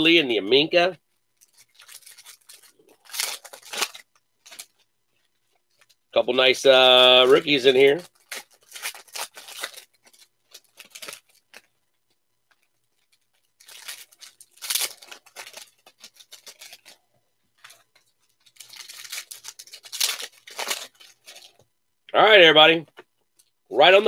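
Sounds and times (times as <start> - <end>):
foil wrapper tearing and crinkling: 1.3 - 4.9, 6.8 - 21.6.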